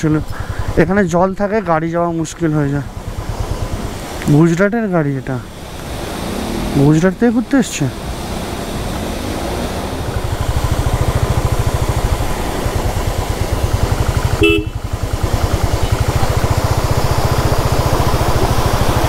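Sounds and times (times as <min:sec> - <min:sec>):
motorcycle engine running: 0:00.0 - 0:19.0
vehicle horn toot: 0:14.3 - 0:14.9.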